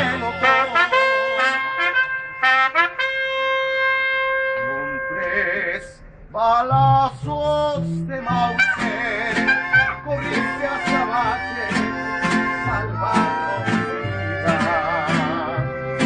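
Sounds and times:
deep bass guitar notes: 0.0s - 2.4s, 4.5s - 16.0s
strummed guitars: 0.0s - 3.9s, 7.2s - 16.0s
trumpet long note: 0.0s - 5.6s.

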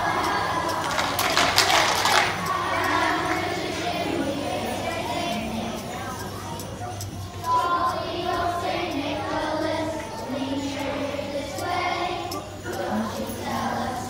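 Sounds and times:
children singing together: 0.0s - 6.4s, 7.4s - 14.0s.

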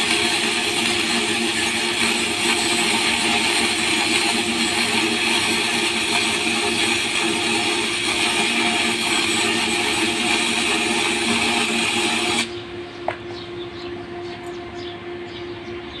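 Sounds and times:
welding arc crackling hiss: 0.0s - 12.5s.

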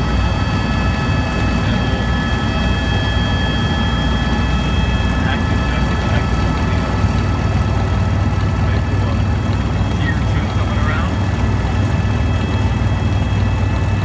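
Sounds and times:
helicopter rotor and engine drone: 0.0s - 14.0s
high whining engine tones: 0.0s - 14.0s.

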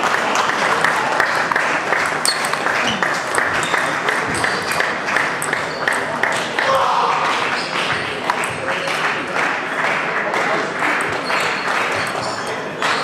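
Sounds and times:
murmur of voices: 0.0s - 13.0s
table tennis ball clicking: 2.0s - 6.4s.

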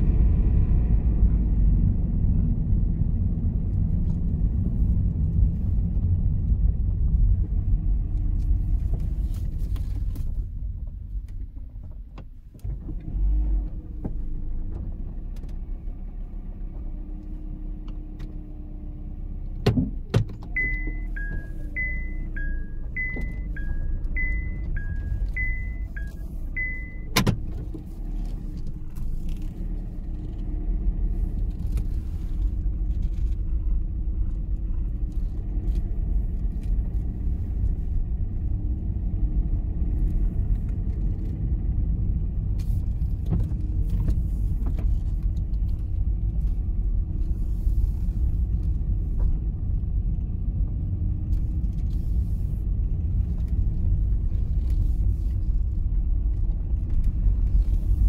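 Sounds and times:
car tyre and engine rumble: 0.0s - 58.0s
alternating electronic beeps: 20.6s - 27.1s.

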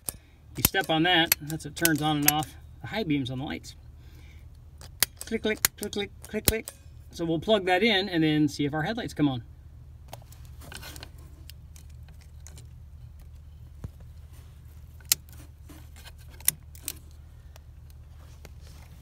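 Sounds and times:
plastic and metal clicks and rattles: 4.8s - 6.8s.

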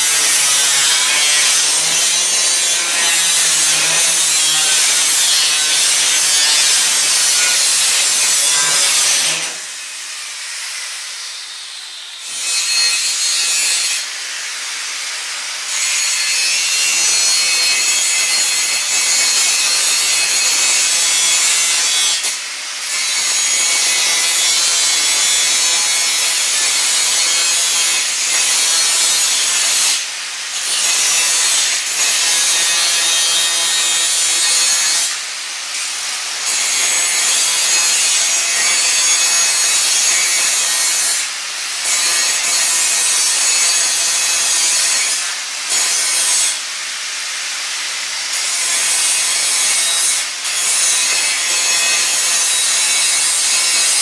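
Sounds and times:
angle grinder cutting: 0.0s - 54.0s.

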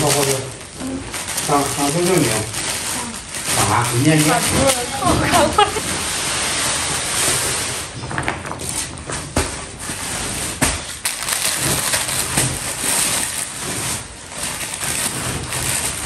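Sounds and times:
plastic packaging rustling: 0.0s - 16.0s
sharp plastic crackles: 0.0s - 16.0s.

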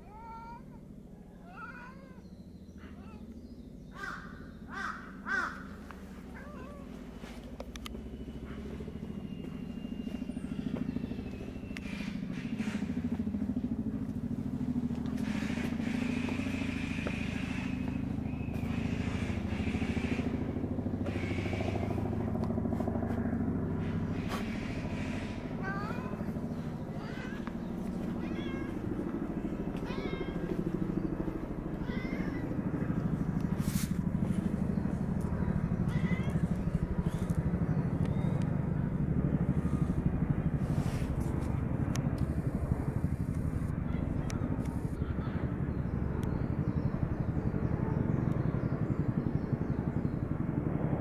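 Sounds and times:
cat meowing: 0.0s - 0.8s, 1.4s - 2.2s, 6.4s - 6.9s, 28.2s - 28.8s, 29.8s - 30.5s, 31.8s - 32.5s
steady low rumble: 2.7s - 50.7s.

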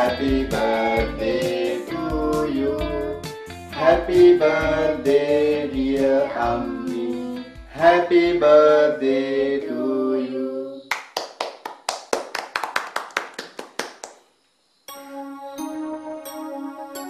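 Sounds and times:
voices singing slow tune: 0.0s - 10.9s
rhythmic hand clapping: 10.9s - 14.2s.

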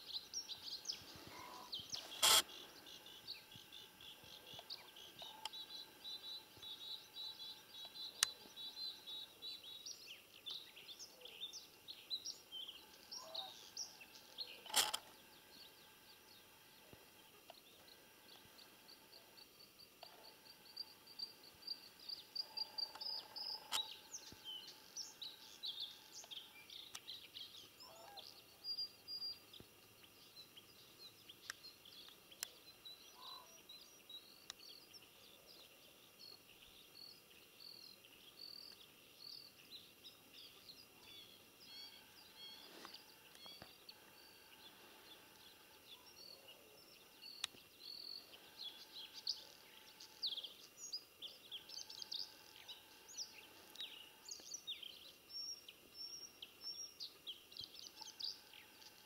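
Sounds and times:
birds chirping and trilling: 0.0s - 59.0s
faint clicks: 34.4s - 34.6s, 47.3s - 47.6s.

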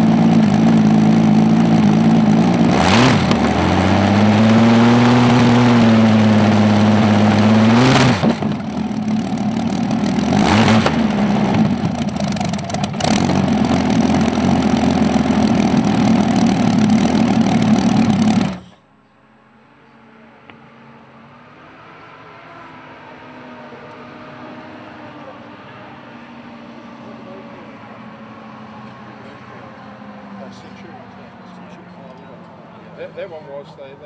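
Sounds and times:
exhaust cracks: 0.0s - 18.8s
tank engine revving and idling: 0.0s - 18.8s, 21.0s - 34.0s.

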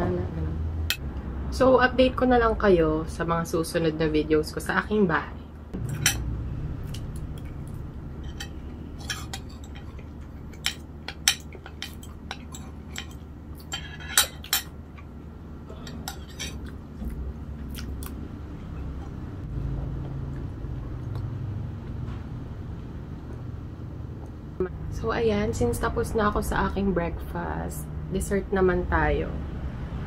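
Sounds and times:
steady low hum: 0.0s - 30.0s
cutlery clinking on a plate: 8.2s - 14.7s, 15.8s - 16.7s.

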